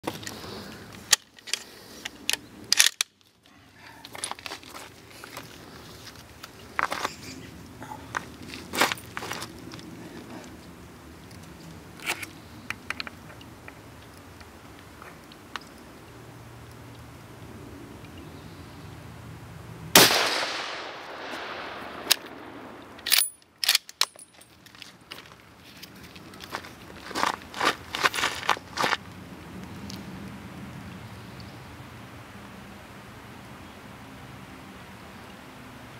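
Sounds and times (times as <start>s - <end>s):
rifle handling clicks and knocks: 0.0s - 7.2s, 11.2s - 15.8s, 21.3s - 29.0s
metallic clicks of rifle action: 0.1s - 3.3s, 21.9s - 24.8s
rifle shot with echo: 19.9s - 22.8s.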